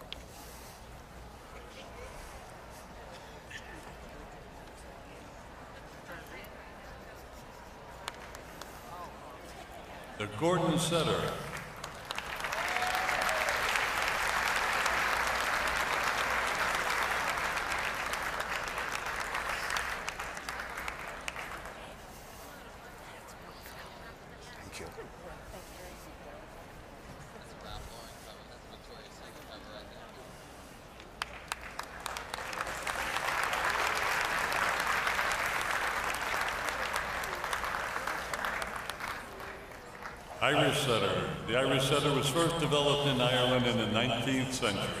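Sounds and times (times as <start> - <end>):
audience applauding: 10.9 - 21.9, 31.2 - 40.9.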